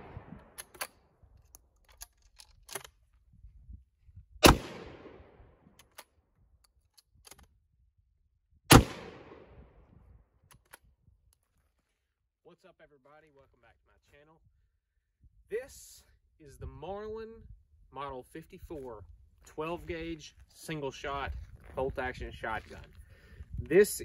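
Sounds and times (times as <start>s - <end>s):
bolt action clicking: 0.4s - 3.0s, 5.8s - 6.1s
shotgun bangs with echo: 4.4s - 5.3s, 8.7s - 9.6s.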